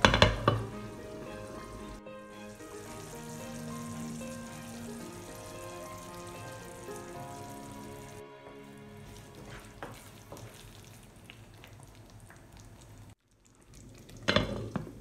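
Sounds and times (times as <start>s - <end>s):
glass lid clattering on pan: 0.0s - 0.7s
wooden spoon stirring knocks: 0.0s - 2.0s, 9.1s - 10.7s
curry sizzling in a pan: 0.0s - 15.0s.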